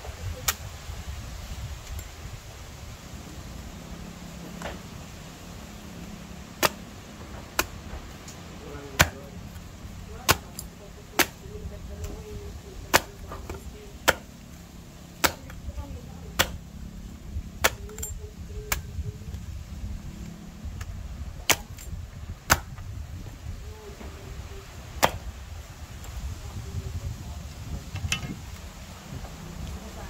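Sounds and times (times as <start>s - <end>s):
machete chopping coconut: 6.5s - 12.2s, 12.8s - 14.5s, 15.2s - 16.7s, 17.6s - 19.0s, 21.4s - 22.8s, 25.0s - 25.3s.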